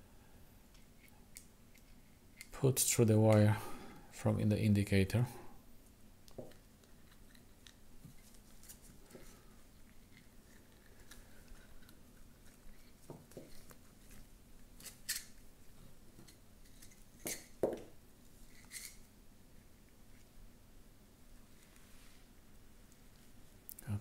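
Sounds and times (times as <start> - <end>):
wire handling clicks and scrapes: 6.5 - 15.4, 18.4 - 19.1.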